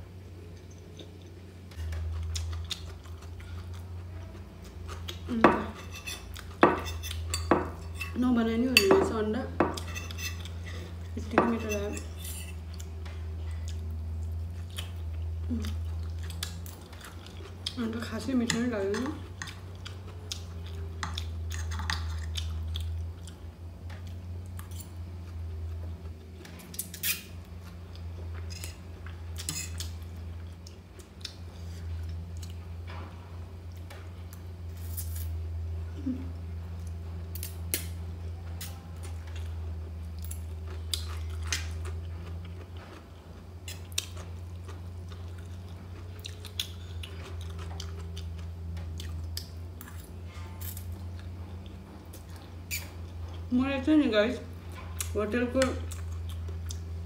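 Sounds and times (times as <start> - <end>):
steady low hum: 0.0 - 57.0
chewing: 0.5 - 7.3, 9.8 - 33.0, 35.9 - 53.5, 54.7 - 57.0
fork scraping on plate: 5.7 - 8.2, 9.8 - 12.6, 29.4 - 29.9.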